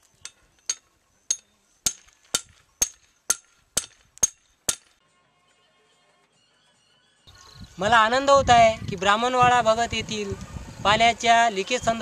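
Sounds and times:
sharp metallic knocks: 0:00.2 - 0:05.0.

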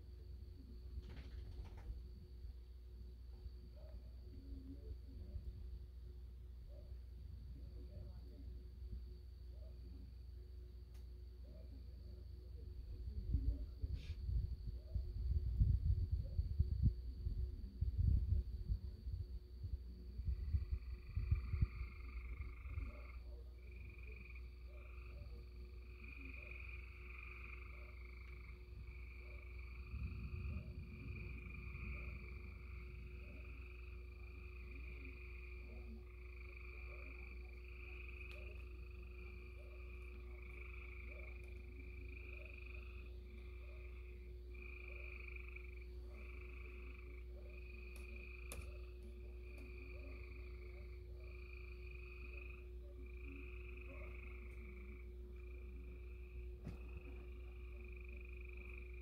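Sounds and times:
faint steady hum: 0:00.0 - 0:59.0
frogs calling: 0:20.3 - 0:59.0
brief low rumble: 0:29.8 - 0:33.5.

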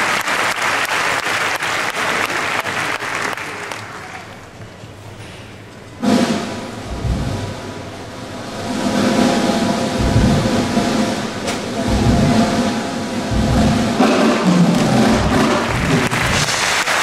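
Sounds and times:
deep drum hits: 0:06.0 - 0:16.6.

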